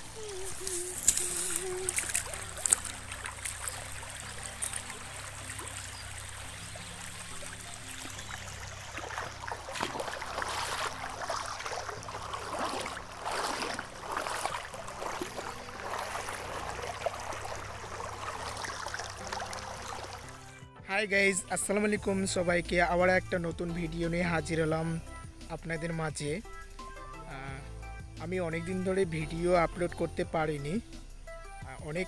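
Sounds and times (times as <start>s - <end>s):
river water rushing: 0.0s - 20.5s.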